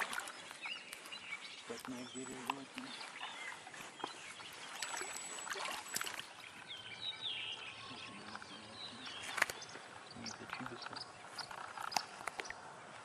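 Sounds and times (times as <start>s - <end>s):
sharp clicks: 9.2s - 9.7s, 10.5s - 12.6s.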